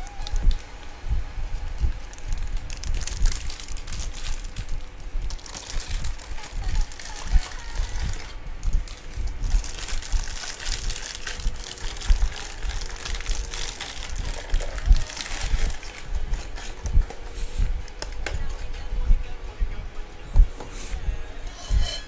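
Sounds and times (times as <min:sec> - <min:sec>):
plastic packaging crinkling: 0:02.0 - 0:16.8.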